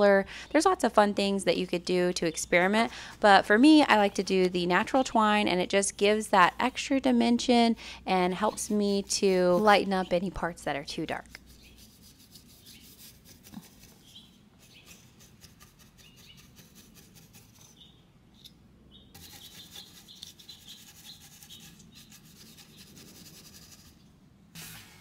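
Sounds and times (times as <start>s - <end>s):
brush scratching on wood: 8.3s - 9.9s, 11.3s - 17.8s, 19.2s - 24.0s.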